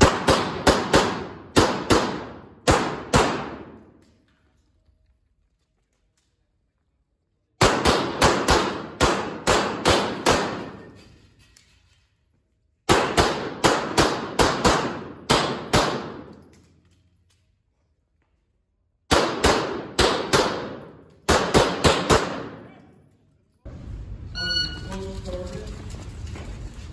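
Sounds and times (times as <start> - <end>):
pistol shots reverberating indoors: 0.0 - 4.4, 7.5 - 23.3.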